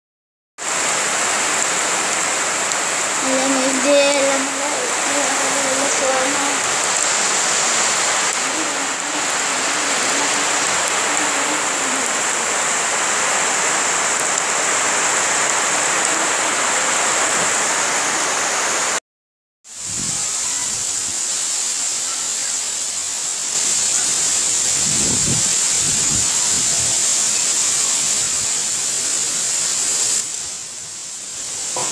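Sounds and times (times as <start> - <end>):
heavy rain pouring on water: 0.6 - 19.0, 19.7 - 31.9
wind gusts buffeting microphone: 3.2 - 12.8, 19.8 - 21.2, 24.4 - 27.3.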